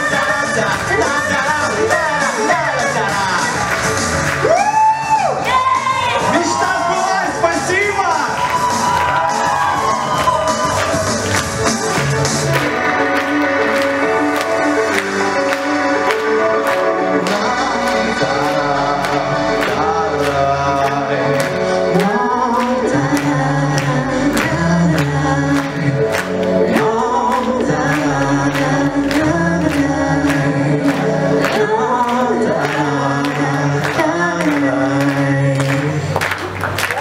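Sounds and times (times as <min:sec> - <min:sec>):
man and woman singing pop duet: 0:00.0 - 0:03.8, 0:17.1 - 0:36.2
backing track with beat and bass: 0:00.0 - 0:36.0.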